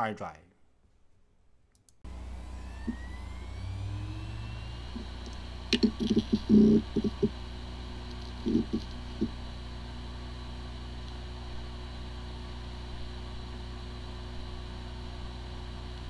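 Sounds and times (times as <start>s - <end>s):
brief low buzzes: 2.1s - 13.5s
hard drive spinning hum: 2.1s - 16.0s.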